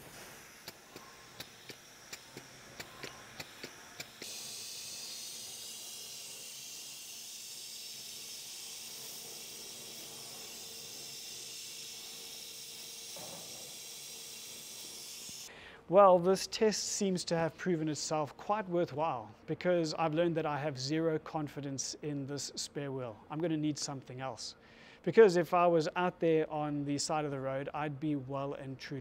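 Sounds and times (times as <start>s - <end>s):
air chuck clicks: 0.0s - 4.8s
compressed air hissing into tyre: 0.0s - 15.6s.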